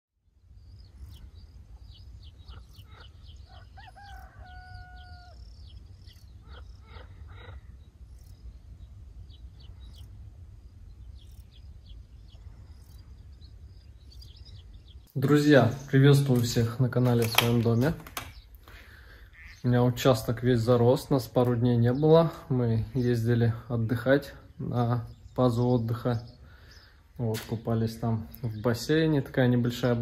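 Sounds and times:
small birds chirping: 0.2 - 30.0
rooster crowing: 3.4 - 5.5.

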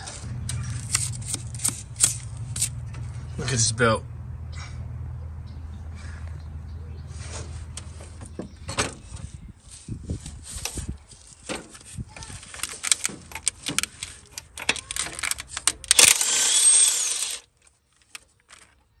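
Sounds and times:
metal tools clicking and clanking: 12.5 - 17.4
cordless impact wrench whining: 12.7 - 17.5.

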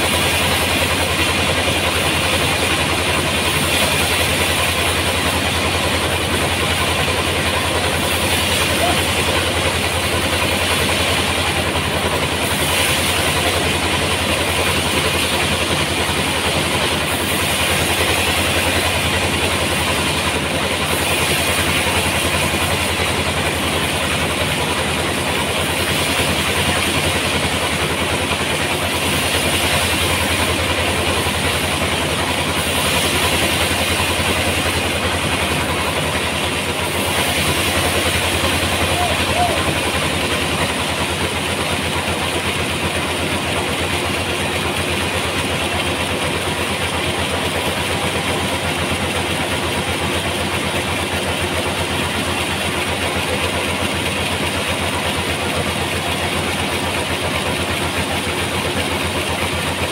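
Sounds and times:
band sawmill humming: 0.0 - 59.9
saw blade hissing through log: 16.9 - 18.9.

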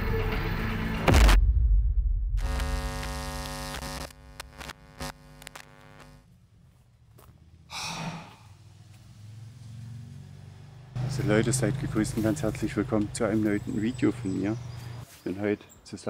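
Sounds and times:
deep boom: 1.0 - 2.6
sharp clicks: 2.4 - 6.2
buzzing electrical hum: 2.4 - 6.3.

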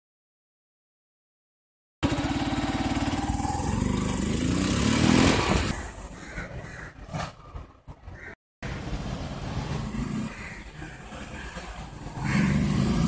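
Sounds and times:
motorcycle accelerating past: 2.0 - 5.7, 12.0 - 13.0.

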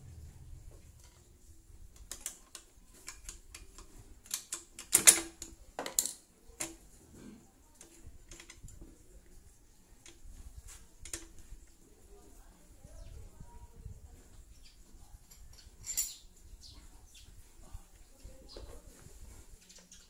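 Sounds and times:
hand tools clicking and tapping: 1.9 - 6.9, 7.8 - 9.0.

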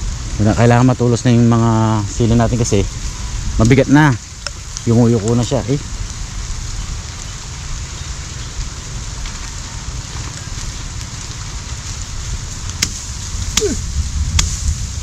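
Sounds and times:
rain on leaves: 0.0 - 15.0.

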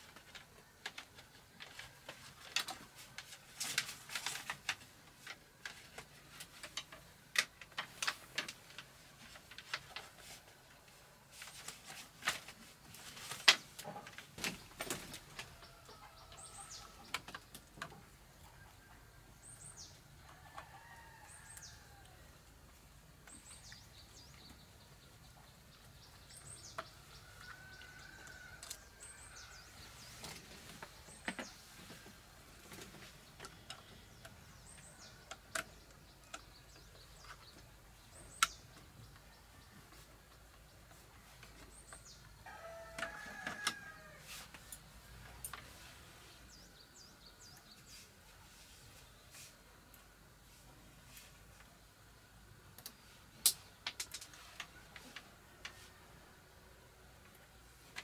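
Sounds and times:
birds chirping: 13.5 - 22.1, 23.2 - 43.2.

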